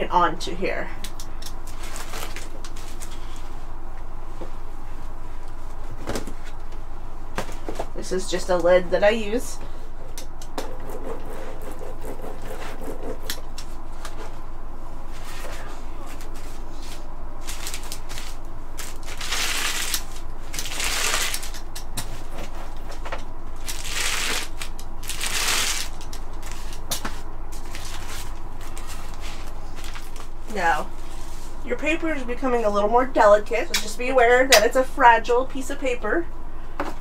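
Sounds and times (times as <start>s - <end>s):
bubble wrap crinkling: 17.4s - 21.8s, 23.6s - 30.4s.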